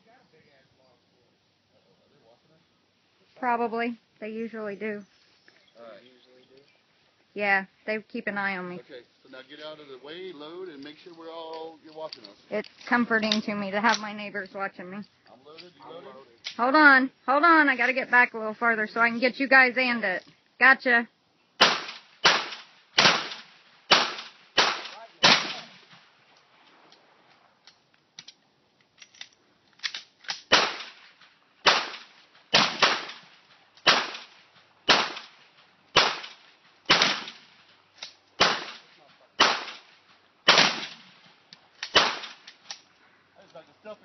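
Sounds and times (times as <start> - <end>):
shotgun blasts: 21.6 - 26.0, 30.4 - 31.0, 31.6 - 37.5, 38.4 - 39.9, 40.5 - 41.2, 41.9 - 42.4.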